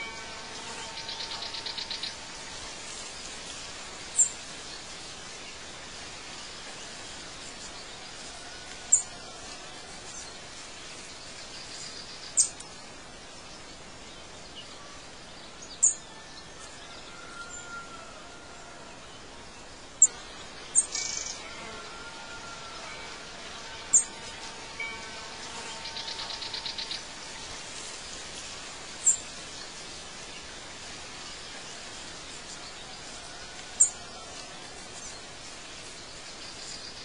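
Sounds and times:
bird trill: 0.0s - 2.2s, 20.8s - 21.4s, 23.9s - 27.1s
birds chirping: 0.0s - 3.5s, 22.4s - 37.0s
background hiss: 0.0s - 37.0s.

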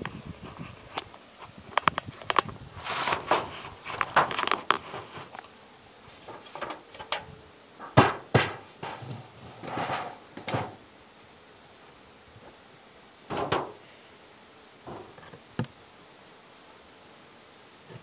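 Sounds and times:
wood and sheet metal scraping: 2.8s - 5.4s, 6.1s - 10.8s
sharp knocks on beehive lid: 7.8s - 9.1s, 13.3s - 13.8s.

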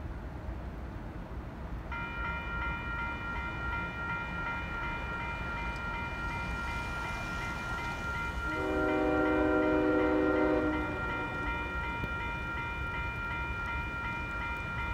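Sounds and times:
crossing signal bell ringing: 1.9s - 14.9s
locomotive horn: 8.5s - 11.9s.

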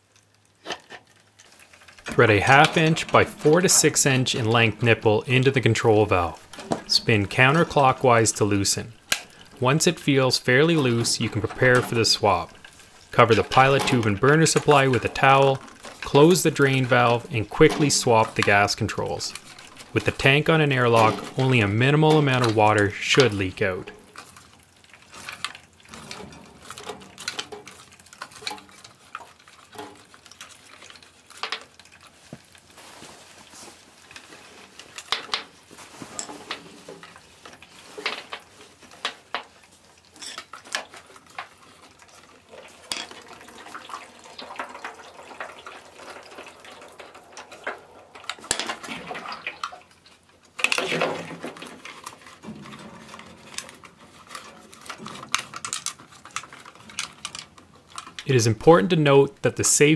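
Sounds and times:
water leaking: 0.0s - 59.9s.

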